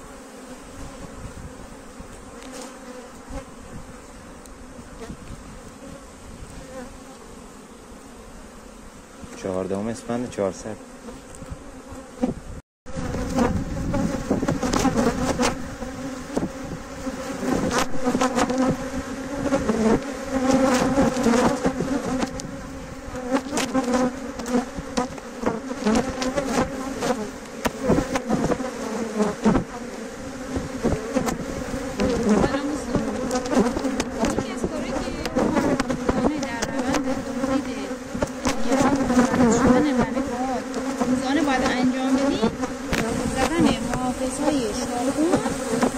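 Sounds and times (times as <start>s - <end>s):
honeybees buzzing: 0.0s - 45.9s
knocks of hive frames: 9.2s - 45.9s.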